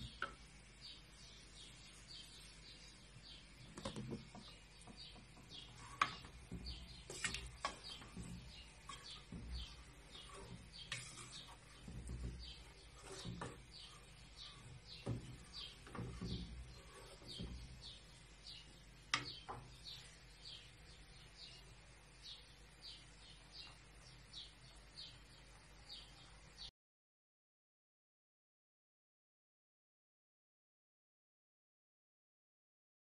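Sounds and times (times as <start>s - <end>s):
bird chirping: 0.0s - 26.7s
wooden spoon stirring in pot: 1.5s - 20.4s
spoon knocking against pot: 3.7s - 17.9s, 19.1s - 19.7s.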